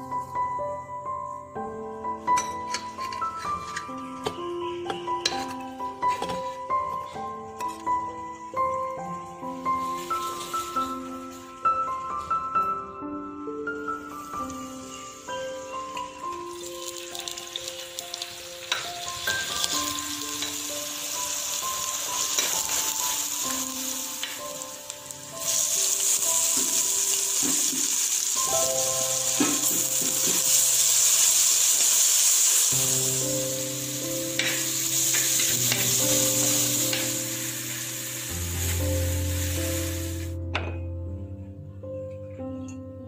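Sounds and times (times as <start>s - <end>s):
light background music: 0.0s - 43.0s
food sizzling in hot oil: 9.5s - 11.5s, 14.3s - 40.4s.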